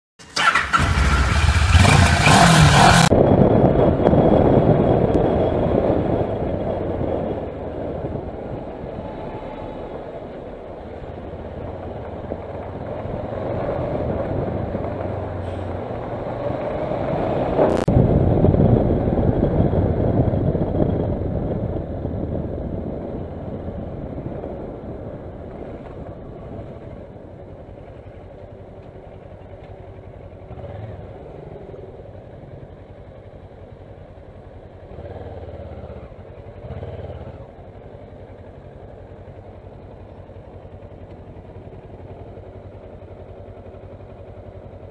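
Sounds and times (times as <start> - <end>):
motorcycle engine: 0.2 - 44.9
wind noise: 1.7 - 30.7.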